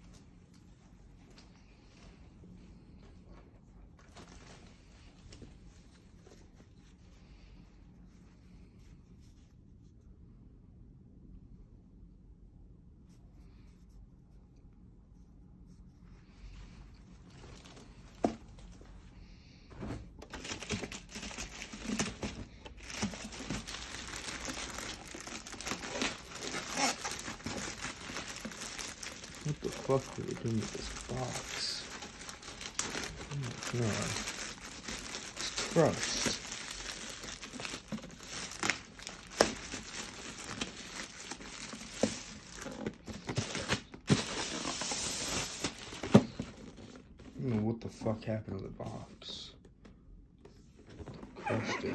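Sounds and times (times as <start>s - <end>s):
plastic bag crinkling and tearing: 20.3s - 46.6s.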